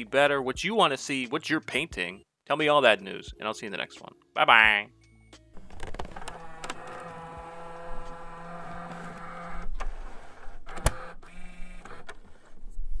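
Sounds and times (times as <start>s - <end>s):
tape mechanism whirring: 5.6s - 12.7s.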